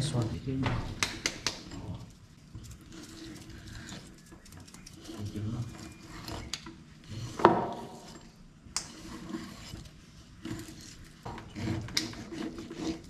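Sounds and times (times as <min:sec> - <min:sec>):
knife scraping and slicing fish: 0:02.6 - 0:13.0.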